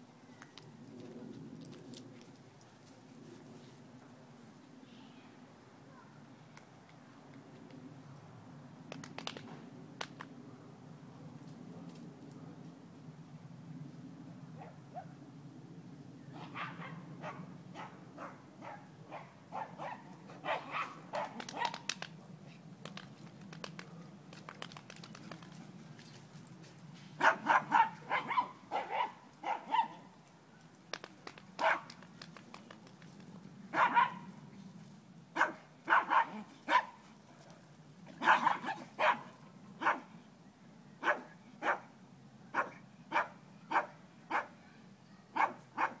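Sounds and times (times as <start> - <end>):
dog barking: 16.4 - 21.8, 27.2 - 30.0, 31.6 - 31.8, 33.7 - 34.3, 35.4 - 37.0, 38.2 - 40.1, 41.0 - 41.9, 42.5 - 44.5, 45.4 - 46.0.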